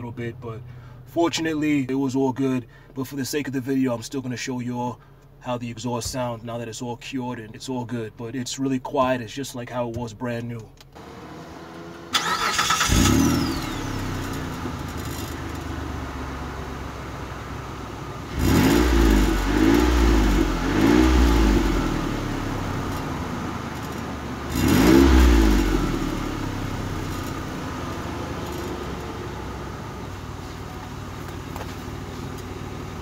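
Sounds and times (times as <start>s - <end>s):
car engine idling and revving: 10.6s - 33.0s.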